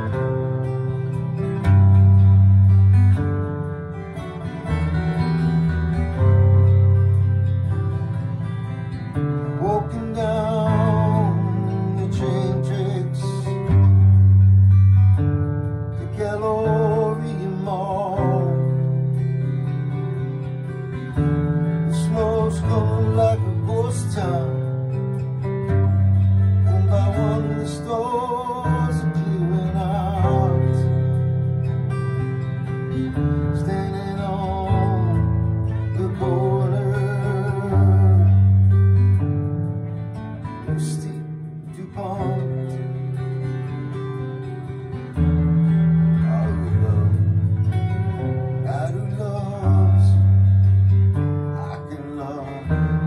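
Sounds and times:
acoustic guitar strumming: 0.0 - 53.0
man singing: 9.4 - 14.2, 16.0 - 19.6, 21.7 - 32.4, 33.4 - 39.1, 40.5 - 44.1, 46.0 - 53.0.

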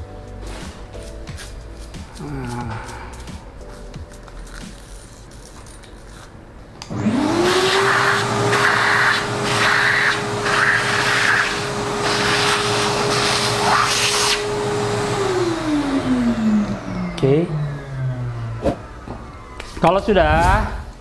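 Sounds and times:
vacuum cleaner motor whine: 6.9 - 20.1.

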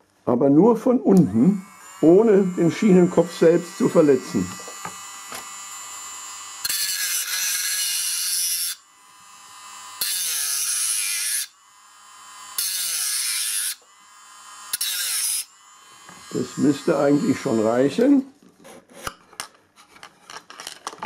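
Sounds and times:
rotary tool motor whining: 1.2 - 18.1
rotary tool grinding metal rail: 1.2 - 19.2.

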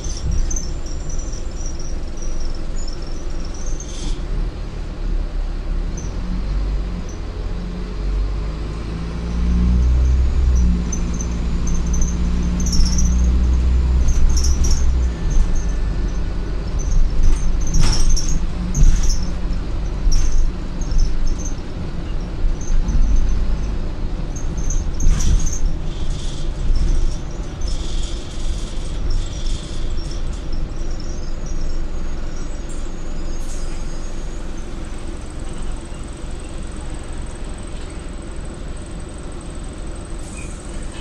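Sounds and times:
body panels rattling and squeaking: 0.0 - 4.0, 10.6 - 34.7
bus engine and road rumble: 0.0 - 41.0.

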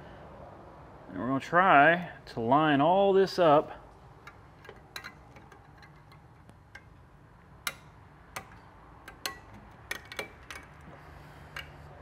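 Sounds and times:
light metal clicks: 4.2 - 12.0.

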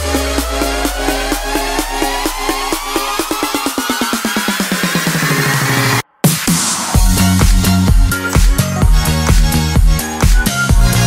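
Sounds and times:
rising synth sweep: 0.0 - 8.2
electronic dance music: 0.0 - 11.0.

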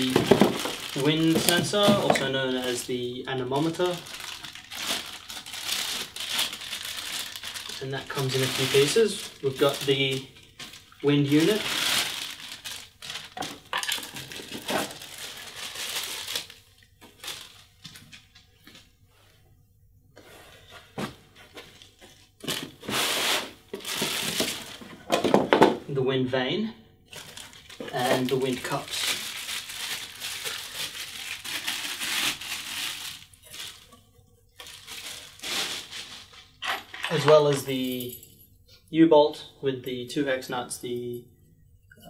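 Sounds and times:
plastic bag crinkling: 0.0 - 18.8, 23.7 - 25.4, 27.1 - 34.0, 34.6 - 38.0.

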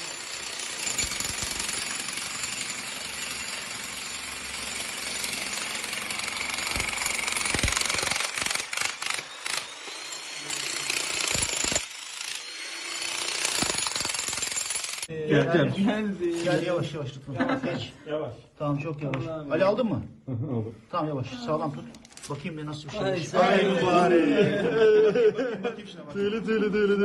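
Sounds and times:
demolition hammer chiselling concrete: 0.0 - 15.1.

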